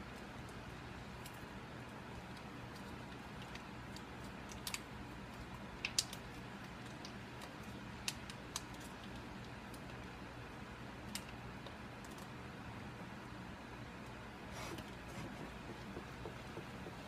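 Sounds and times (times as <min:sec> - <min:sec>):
steady low hum: 0:14.2 - 0:17.0
hands clicking and tapping on counter: 0:14.6 - 0:17.0.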